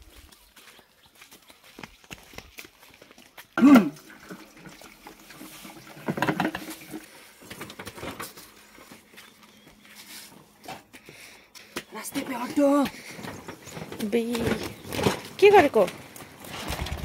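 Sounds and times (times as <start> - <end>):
petrol trickling into fuel tank: 3.8 - 9.1.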